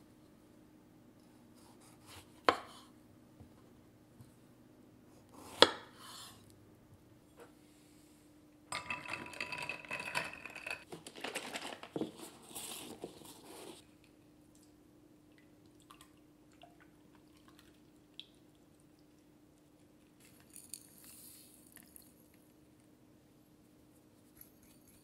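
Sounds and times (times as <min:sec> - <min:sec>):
paper carton crinkling: 0:10.9 - 0:13.8.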